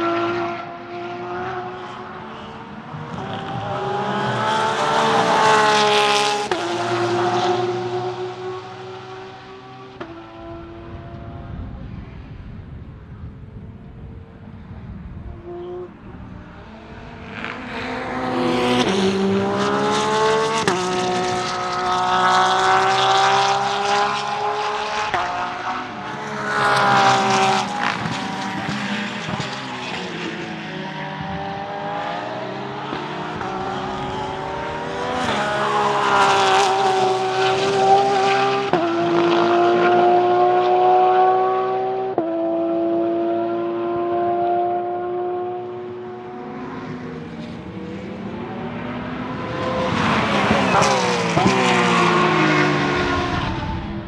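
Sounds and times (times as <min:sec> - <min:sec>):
racing engine accelerating: 0:00.0 - 0:11.6, 0:15.3 - 0:54.0
race car passing by: 0:14.6 - 0:54.0.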